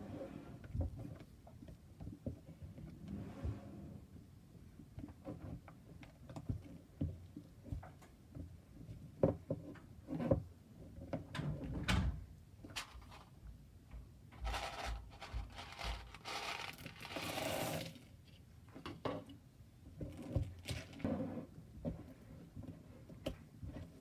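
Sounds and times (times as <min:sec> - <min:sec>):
beads poured rattling: 0:14.4 - 0:18.0
stick scraping plastic bowl: 0:14.4 - 0:18.2.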